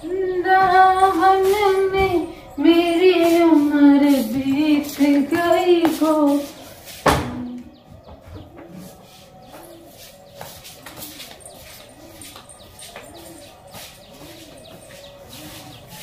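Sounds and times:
small birds chirping: 0:00.0 - 0:16.0
pigeon cooing: 0:07.4 - 0:16.0.

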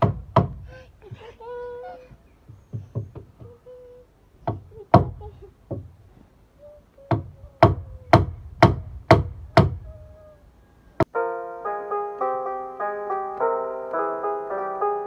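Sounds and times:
hammer striking wooden board: 0:00.0 - 0:00.6, 0:07.1 - 0:09.8.

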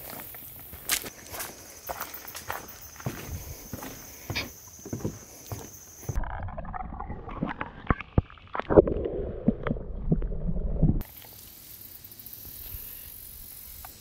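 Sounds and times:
muffled water sloshing and gurgling: 0:06.2 - 0:11.0.

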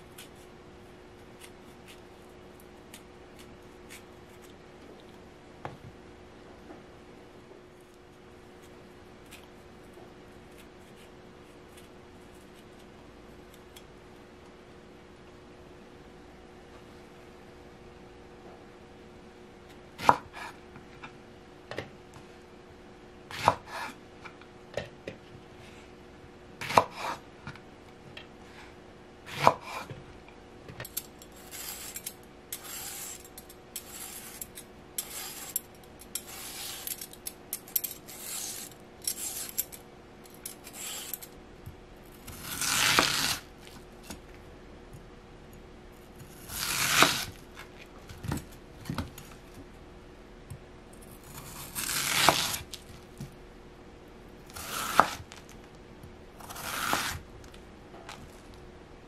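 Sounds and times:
faint steady hum: 0:00.0 - 0:59.0
knife slicing through yam: 0:42.2 - 0:44.2, 0:46.2 - 0:47.7, 0:51.2 - 0:52.7, 0:54.5 - 0:55.4, 0:56.4 - 0:57.2
knife chopping on wooden board: 0:54.6 - 0:55.3, 0:56.4 - 0:57.2.

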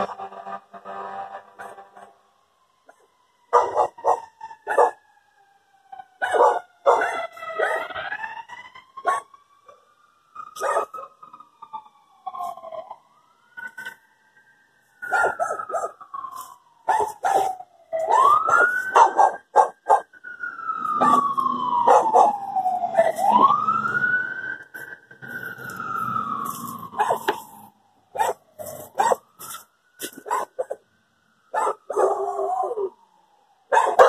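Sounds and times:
siren wailing: 0:00.0 - 0:34.0
dog barking: 0:03.5 - 0:05.0, 0:06.2 - 0:07.9, 0:09.0 - 0:09.3, 0:10.6 - 0:11.1, 0:15.1 - 0:16.0, 0:16.9 - 0:20.1, 0:21.9 - 0:22.4, 0:27.0 - 0:27.3, 0:28.1 - 0:28.4, 0:29.0 - 0:29.2, 0:30.2 - 0:30.8, 0:31.5 - 0:32.2, 0:33.7 - 0:34.0.

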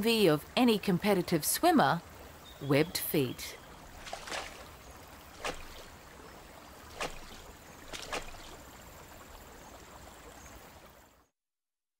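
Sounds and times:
water rushing: 0:03.0 - 0:11.1
frog splashing in water: 0:03.8 - 0:09.2.

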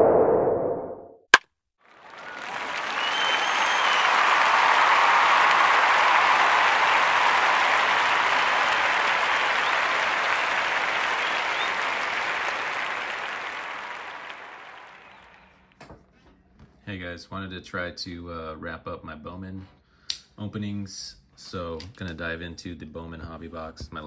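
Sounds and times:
crowd applause: 0:01.9 - 0:15.5
faint whistles: 0:02.1 - 0:05.5, 0:06.9 - 0:15.7.

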